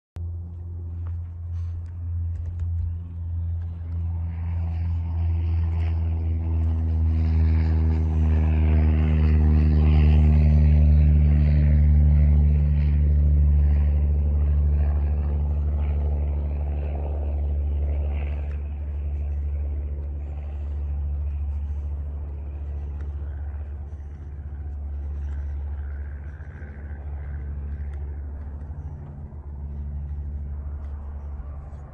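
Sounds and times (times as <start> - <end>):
engine droning: 0.2 - 31.9.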